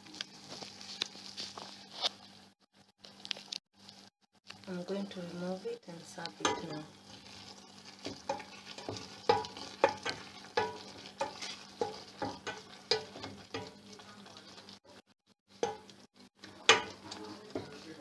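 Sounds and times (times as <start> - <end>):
spoon knocking against metal pot: 6.4 - 6.8, 8.0 - 13.8, 15.6 - 15.9, 16.6 - 17.0.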